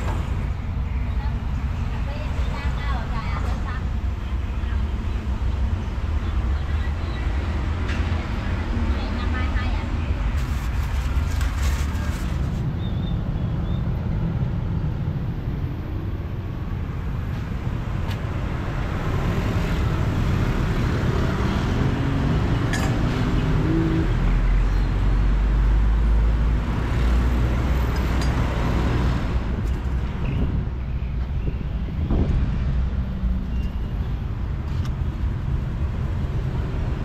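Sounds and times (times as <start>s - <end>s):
passing cars and motorbikes: 0.0s - 37.0s.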